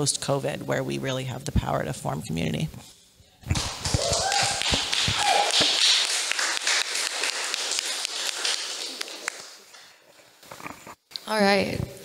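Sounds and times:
audience applauding: 0:03.6 - 0:10.0.

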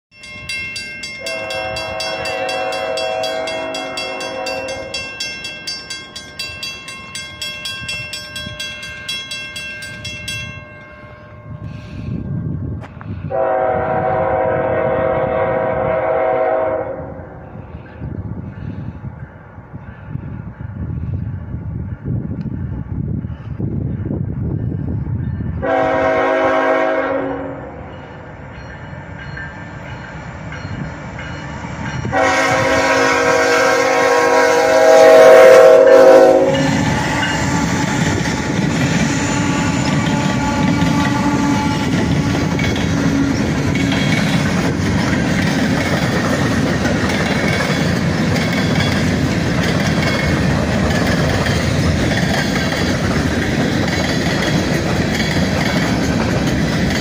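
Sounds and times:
train passing at speed: 0:00.1 - 0:57.0
train air horn blasts: 0:01.2 - 0:05.1, 0:13.1 - 0:17.8, 0:25.6 - 0:27.9, 0:32.1 - 0:44.1
wheels clattering on rails: 0:36.4 - 0:57.0.

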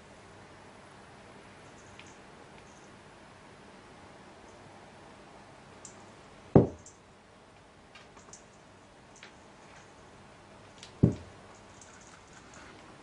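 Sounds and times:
dull thumps: 0:06.6 - 0:06.9, 0:11.0 - 0:11.3.

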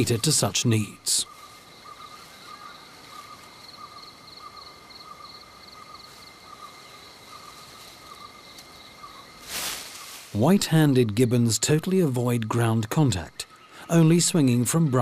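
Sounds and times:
insects calling: 0:00.0 - 0:15.0
rapidly pulsing insect tone: 0:01.3 - 0:10.2.

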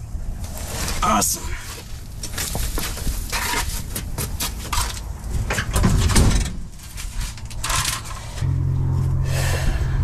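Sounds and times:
knocks and clanks: 0:02.3 - 0:08.6
low rumble: 0:07.4 - 0:10.0.

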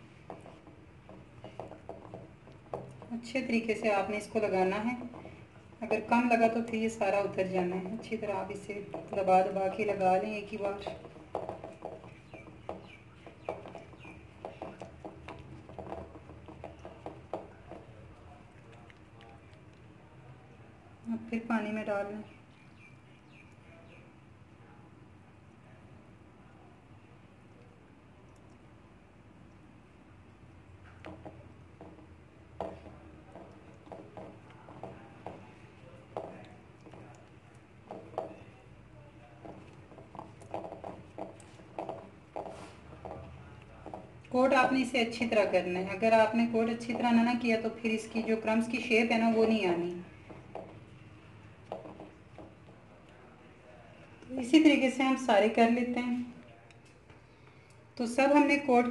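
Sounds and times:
hand patting chicken in flour: 0:30.9 - 0:44.3.

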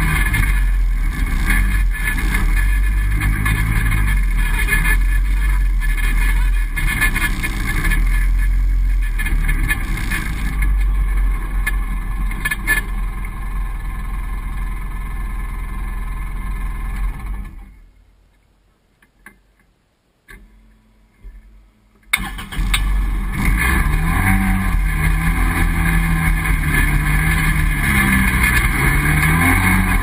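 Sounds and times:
vehicle engine running: 0:00.0 - 0:17.8, 0:22.2 - 0:30.0.

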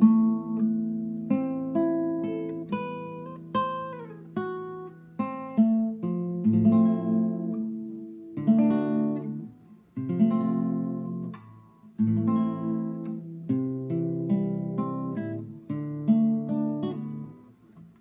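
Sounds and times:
acoustic guitar playing: 0:00.0 - 0:18.0.

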